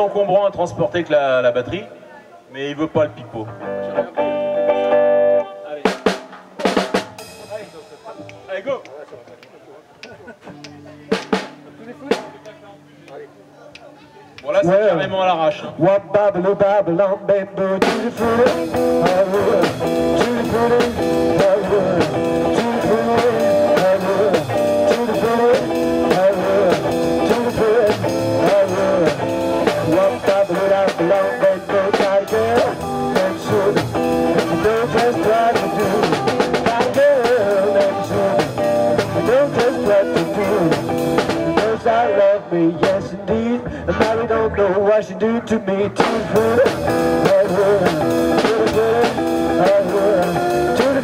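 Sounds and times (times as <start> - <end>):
blues band playing: 3.3 - 14.9, 16.1 - 51.0
person singing: 15.6 - 51.0.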